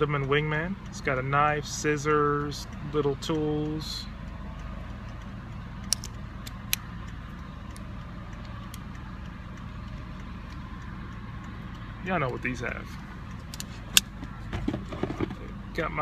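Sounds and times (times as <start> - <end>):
low vehicle hum: 0.0 - 16.0
sharp metallic clicks of multitool: 5.8 - 8.8, 13.3 - 14.4.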